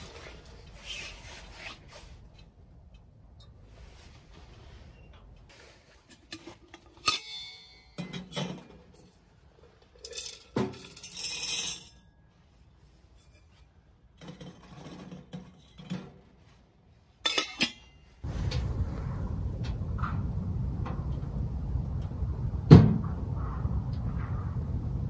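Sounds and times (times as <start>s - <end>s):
metal pieces clinking on stove: 10.0s - 12.0s.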